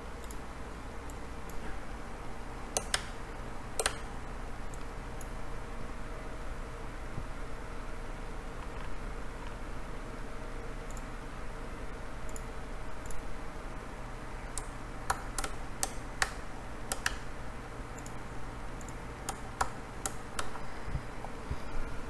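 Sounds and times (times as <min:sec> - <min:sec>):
low steady hum: 0:00.0 - 0:22.0
mouse and keyboard clicks: 0:03.8 - 0:04.1, 0:14.5 - 0:17.2.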